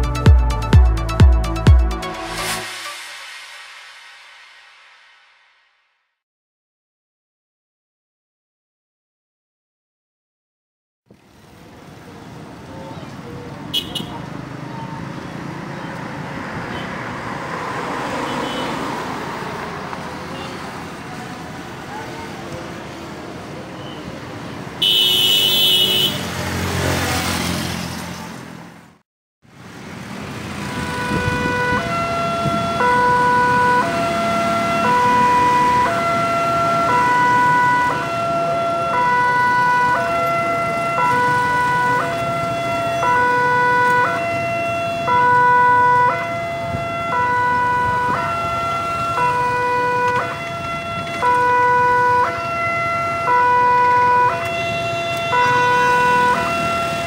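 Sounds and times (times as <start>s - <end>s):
vehicle passing close: 14.2s - 24.8s, 26.1s - 29.0s, 29.6s - 45.2s
two-tone crossing alarm: 30.5s - 57.0s.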